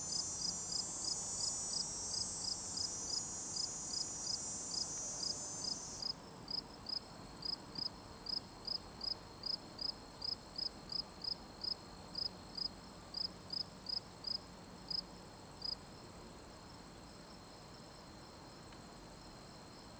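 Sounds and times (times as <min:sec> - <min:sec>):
insect regular high chirp: 0:00.0 - 0:07.6
insect steady high-pitched trill: 0:00.0 - 0:07.6
loud broad insect trill: 0:00.0 - 0:07.6.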